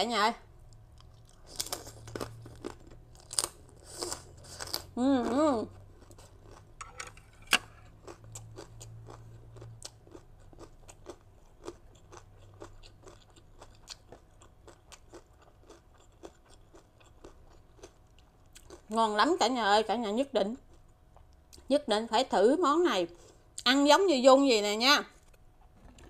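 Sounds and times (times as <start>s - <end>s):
person chewing crunchy crackers: 0.6s - 19.0s, 20.6s - 21.6s.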